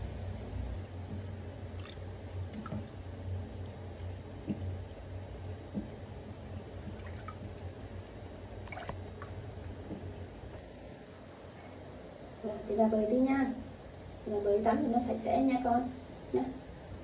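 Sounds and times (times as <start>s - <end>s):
bathwater lapping and dripping: 0.0s - 10.8s
steady low hum: 0.0s - 17.0s
small water splashes: 1.1s - 10.4s.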